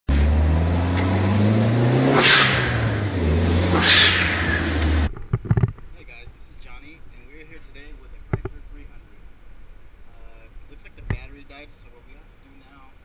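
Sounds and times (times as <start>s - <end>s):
car engine revving: 0.1s - 5.1s
loud whooshing sweeps: 0.1s - 5.1s.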